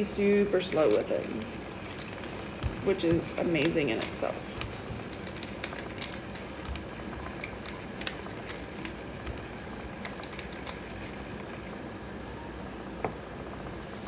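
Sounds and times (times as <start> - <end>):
room noise: 0.0 - 14.0.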